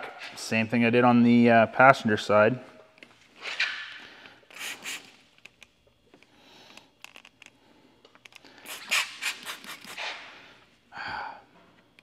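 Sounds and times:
trigger spray bottle squirts: 0:04.5 - 0:05.5, 0:08.6 - 0:10.2.

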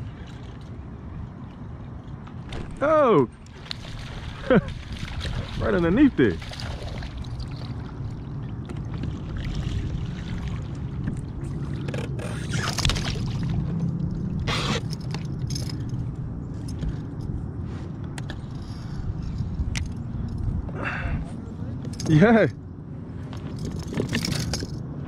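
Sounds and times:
water splashes: 0:00.0 - 0:15.4
water sloshing around kayak: 0:00.0 - 0:21.9
steady low rumble: 0:00.0 - 0:25.0.

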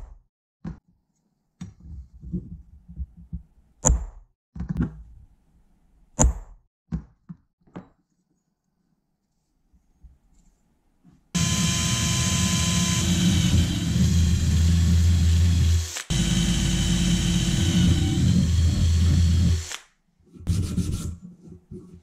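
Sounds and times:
electric drill whining: 0:11.4 - 0:19.8.

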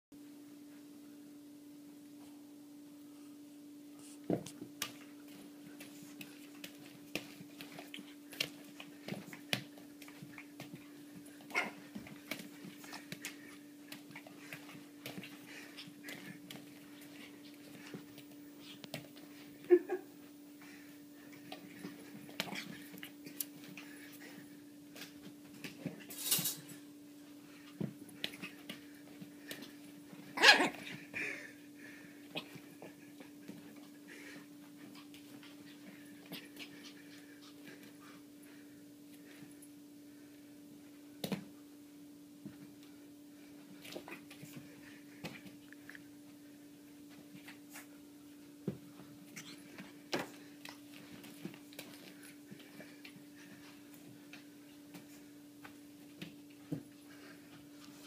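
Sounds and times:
steady low hum: 0:00.2 - 0:58.0
puppy scuffling: 0:04.0 - 0:31.2, 0:32.2 - 0:39.8, 0:42.4 - 0:58.0
puppy yapping: 0:30.4 - 0:30.9.

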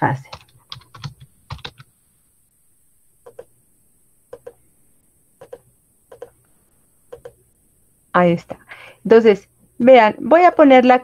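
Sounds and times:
keyboard keystrokes: 0:04.3 - 0:04.6, 0:05.4 - 0:06.3, 0:07.1 - 0:07.4.

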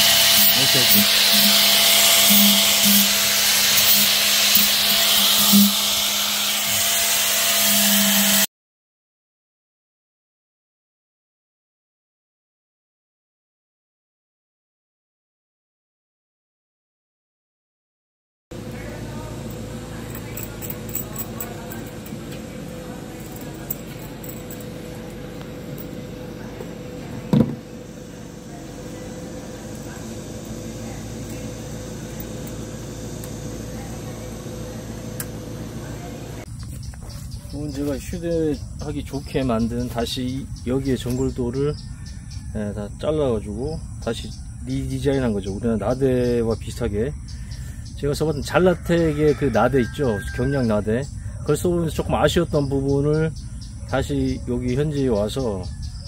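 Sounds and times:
angle grinder grinding wood: 0:00.0 - 0:08.5, 0:18.6 - 0:38.3
background hum: 0:18.6 - 0:56.0.

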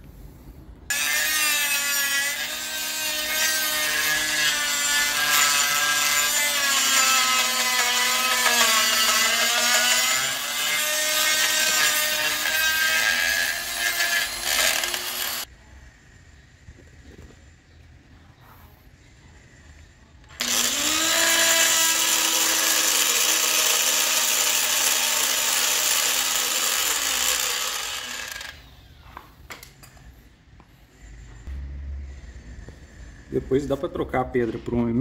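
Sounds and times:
die grinder grinding metal: 0:00.9 - 0:15.5, 0:20.3 - 0:28.6.

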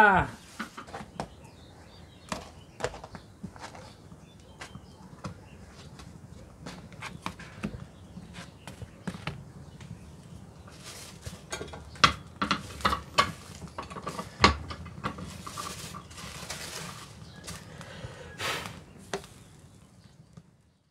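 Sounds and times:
tortillas clicking and tapping: 0:02.3 - 0:18.0.

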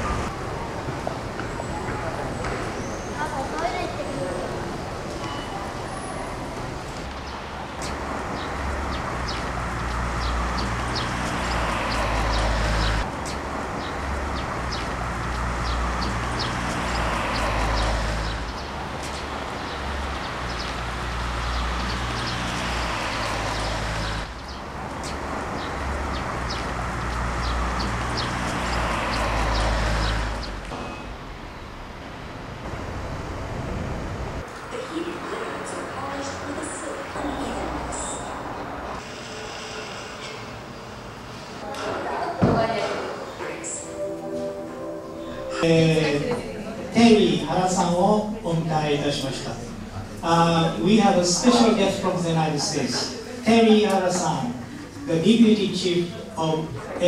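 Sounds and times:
traffic hum: 0:00.0 - 0:57.0.

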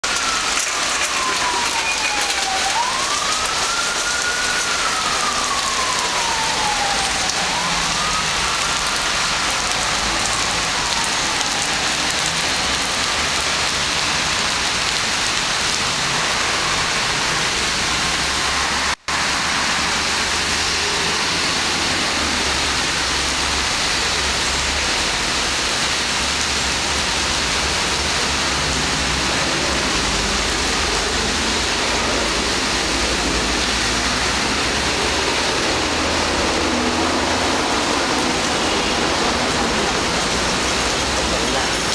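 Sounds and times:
siren wailing: 0:00.0 - 0:14.2, 0:29.0 - 0:41.9
heavy rain on pavement: 0:00.0 - 0:41.9
low traffic rumble: 0:00.0 - 0:41.9.

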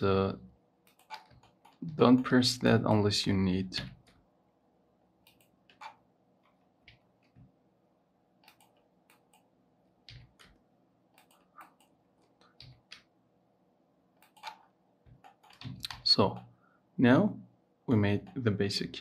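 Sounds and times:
computer keyboard and mouse clicks: 0:00.9 - 0:02.0, 0:05.2 - 0:07.5, 0:08.4 - 0:13.1, 0:14.2 - 0:16.5.

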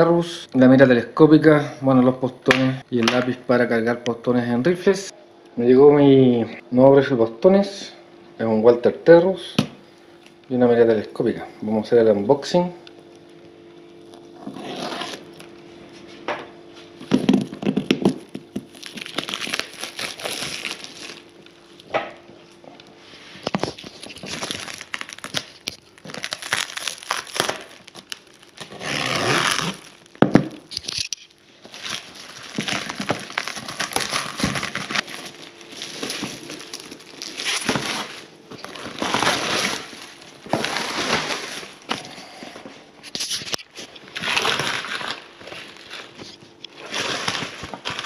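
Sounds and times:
plastic wrap and tape tearing: 0:14.1 - 0:15.5, 0:17.2 - 0:21.4, 0:23.4 - 0:42.3, 0:43.0 - 0:48.0.

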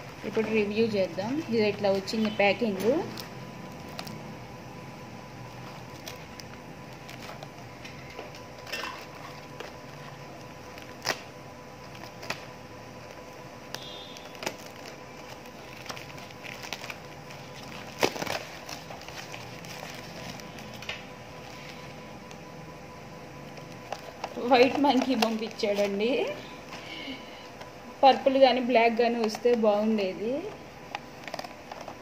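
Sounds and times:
faint steady hum: 0:00.0 - 0:32.0
plastic wrapped foam crinkling: 0:05.5 - 0:22.4, 0:23.5 - 0:26.8.

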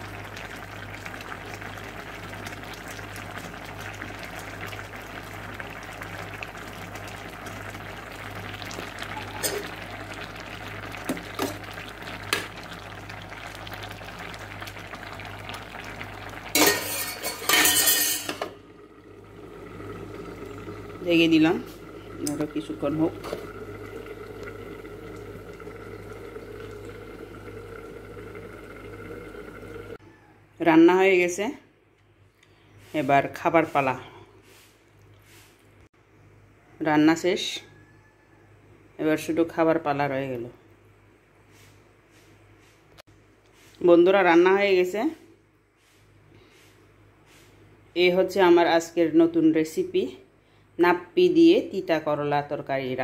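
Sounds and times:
curry bubbling at a boil: 0:00.0 - 0:30.3
low steady hum: 0:00.0 - 0:30.6
pot simmering on gas stove: 0:00.0 - 0:31.4.

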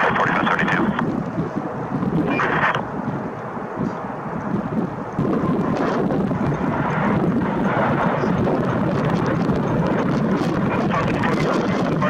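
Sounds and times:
jet engines rumbling: 0:00.0 - 0:12.0
wind buffeting microphone: 0:00.0 - 0:12.0.

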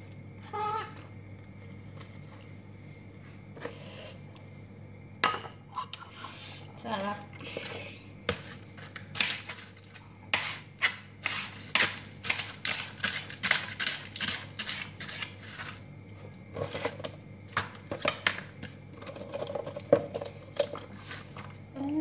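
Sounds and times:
knife crunching through vegetables: 0:08.3 - 0:15.8.

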